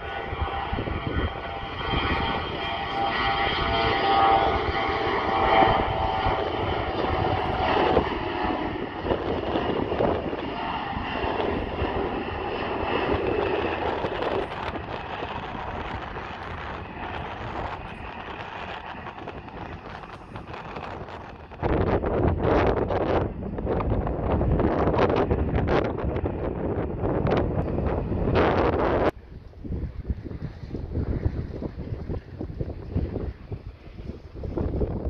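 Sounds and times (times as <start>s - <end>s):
jet engines whining on takeoff: 0.0s - 35.0s
wind rumbling on microphone: 0.0s - 35.0s.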